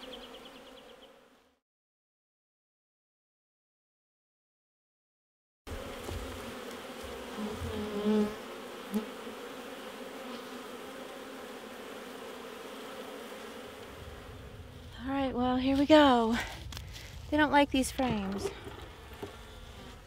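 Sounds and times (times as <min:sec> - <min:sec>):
bees buzzing: 0:00.0 - 0:01.5, 0:05.7 - 0:15.4, 0:18.2 - 0:20.0
bees droning past close: 0:00.0 - 0:01.5, 0:05.7 - 0:15.0.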